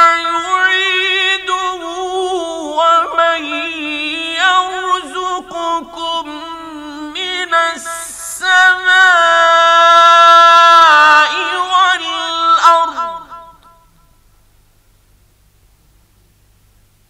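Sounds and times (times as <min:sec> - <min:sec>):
man chanting melismatic recitation: 0:00.0 - 0:13.8.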